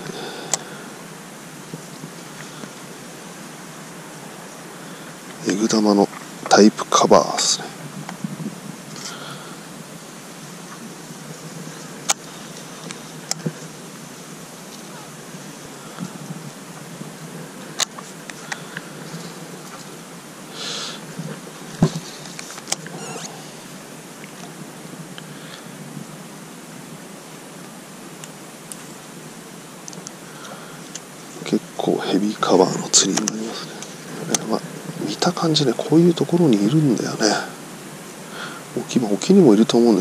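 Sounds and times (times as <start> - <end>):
rustle of dry reeds: 0.0 - 40.0
steady background hiss: 0.0 - 40.0.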